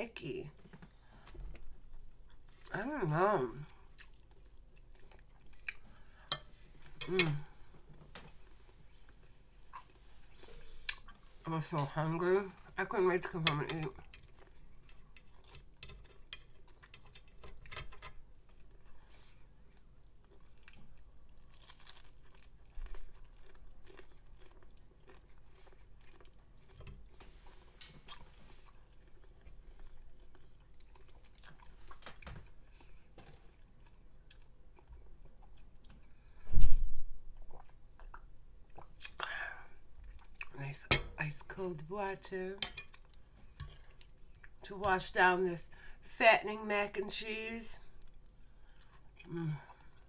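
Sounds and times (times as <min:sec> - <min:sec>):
chewing fried fish: 0:03.6 - 0:11.8, 0:13.8 - 0:36.4, 0:37.3 - 0:40.6, 0:42.6 - 0:44.6, 0:47.8 - 0:50.0.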